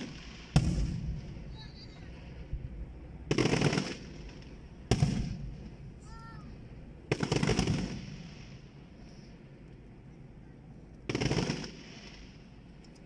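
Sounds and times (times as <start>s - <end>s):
firework bang with rumble: 0.0s - 1.5s, 3.3s - 5.8s
fireworks crackling pops: 0.0s - 2.7s, 3.3s - 5.8s, 7.1s - 8.8s, 11.0s - 13.0s.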